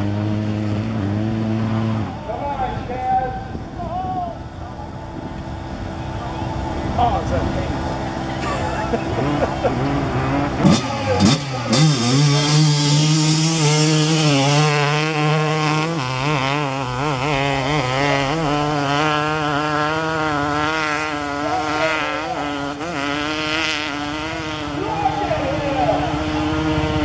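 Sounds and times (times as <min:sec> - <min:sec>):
motorcycle engine revving high: 0:00.0 - 0:27.0.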